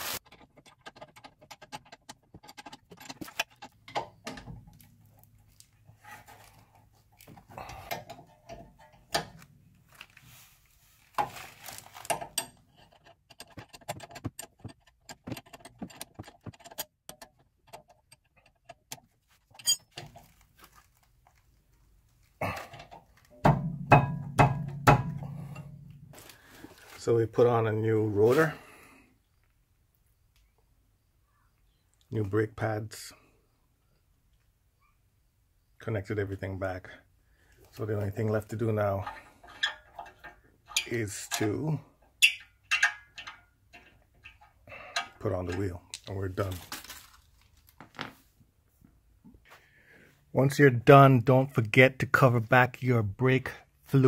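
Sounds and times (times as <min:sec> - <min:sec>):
wrenches clicking on bolts: 0:38.8 - 0:45.6.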